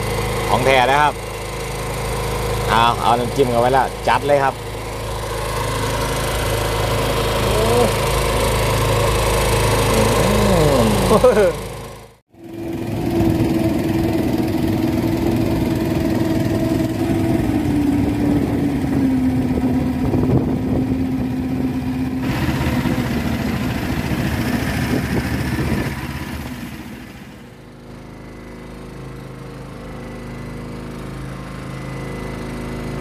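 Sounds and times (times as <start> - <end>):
boat engine running: 0.0 - 33.0.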